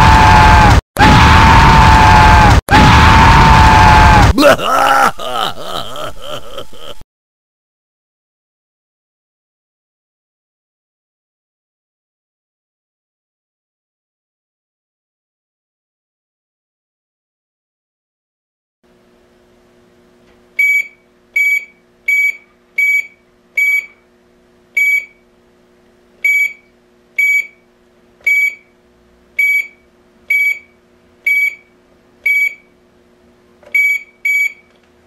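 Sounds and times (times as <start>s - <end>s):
keypad beeps: 20.6s - 24.0s, 26.3s - 26.6s, 33.8s - 34.7s.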